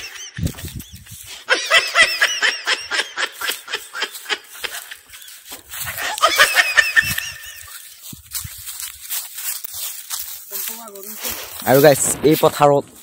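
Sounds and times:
young man giggling: 0.0 - 8.0.

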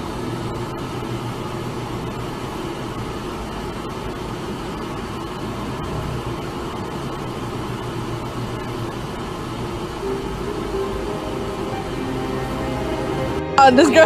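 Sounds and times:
vehicle engine and road rumble: 0.0 - 10.1.

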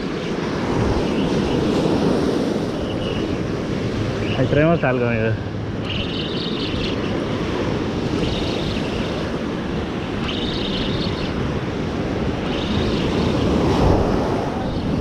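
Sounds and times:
surf washing in: 0.0 - 15.0
wind on microphone: 0.0 - 15.0
fishing reel whirring: 5.8 - 13.7.

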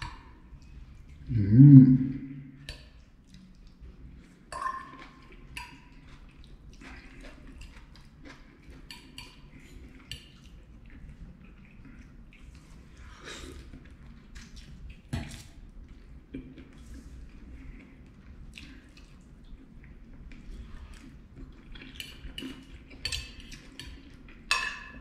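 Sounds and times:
fork clinking on a plate: 4.6 - 5.2.

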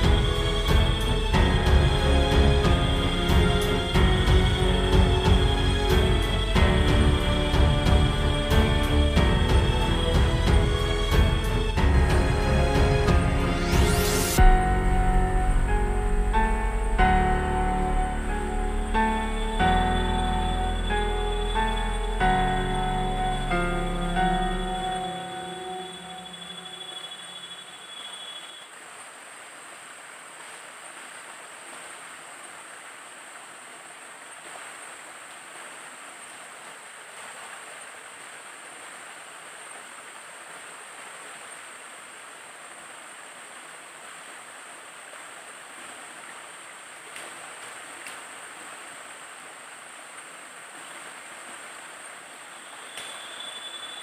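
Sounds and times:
steady high-pitched tone: 14.0 - 28.6
water running over rocks: 28.6 - 54.0.

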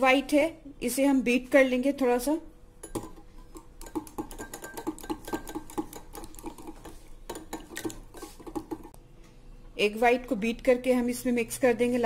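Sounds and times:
whisk clicking against bowl: 2.8 - 9.0.

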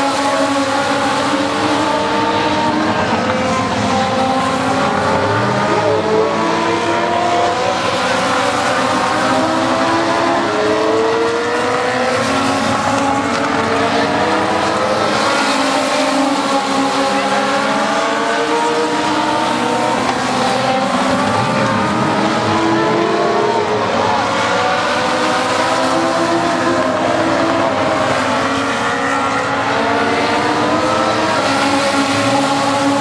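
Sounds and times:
race car engines: 0.0 - 33.0.

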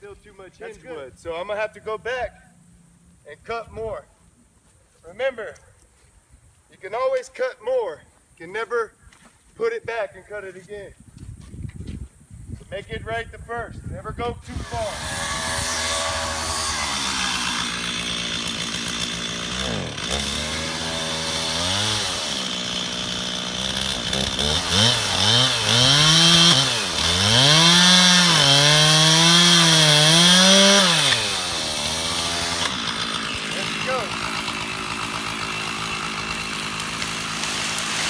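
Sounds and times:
chainsaw revving and cutting wood: 14.5 - 38.0.

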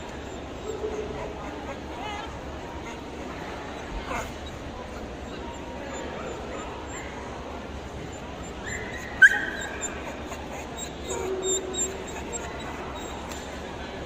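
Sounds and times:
hubbub of busy hall: 0.0 - 14.0
dog whining and yipping: 8.0 - 13.4.

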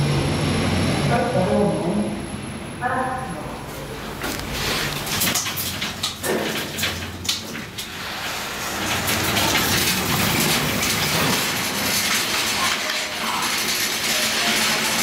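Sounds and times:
elevator doors clicking: 3.6 - 15.0
shopping trolleys rattling: 4.0 - 15.0.

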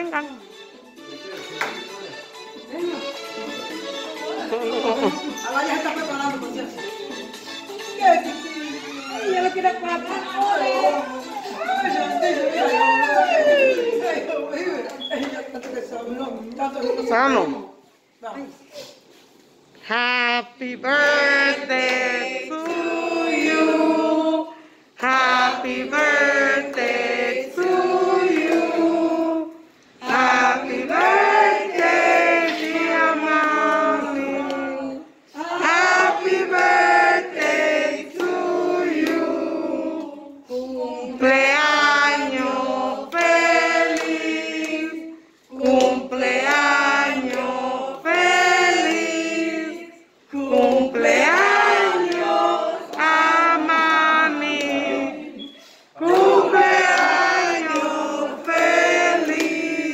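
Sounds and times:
group of people singing together: 19.9 - 59.9.

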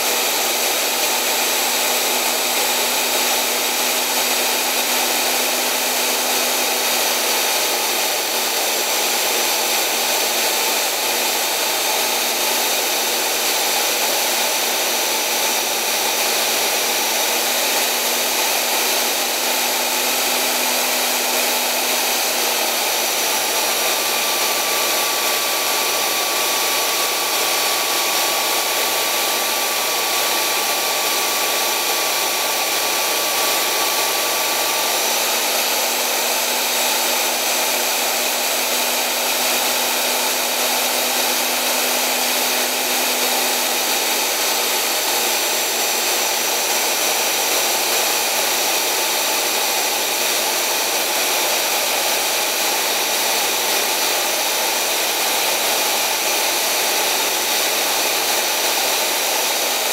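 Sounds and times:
belt sander running: 0.0 - 59.9.

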